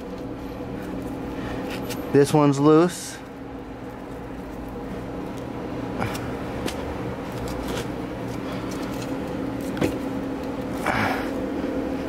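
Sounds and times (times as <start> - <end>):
fan motor humming: 0.0 - 12.0.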